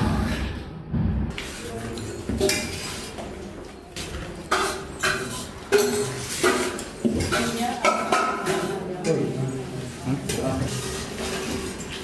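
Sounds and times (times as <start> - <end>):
steel dishes clinking: 4.5 - 9.2.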